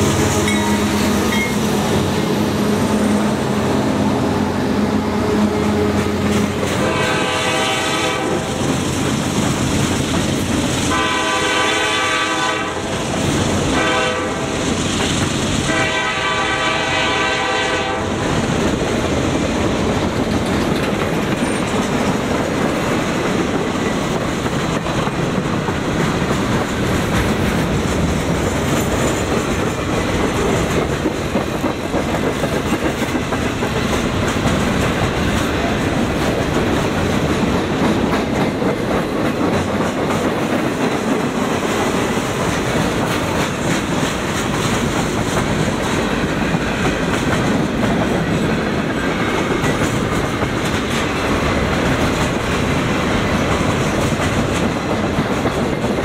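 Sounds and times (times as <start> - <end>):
train horn blasts: 0.0 - 1.5, 6.6 - 8.6, 10.9 - 14.7, 15.6 - 18.4
diesel locomotives working hard: 0.0 - 56.0
train wheels clacking over rails: 0.0 - 56.0.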